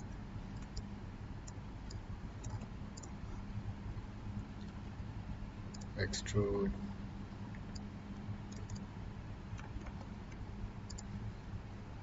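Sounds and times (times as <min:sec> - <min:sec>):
low electrical hum: 0:00.0 - 0:12.0
faint computer mouse clicks: 0:08.5 - 0:08.8, 0:09.6 - 0:11.1.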